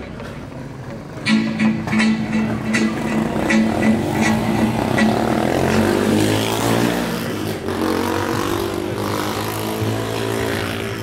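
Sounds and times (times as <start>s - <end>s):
loud music with heavy bass: 1.2s - 8.4s.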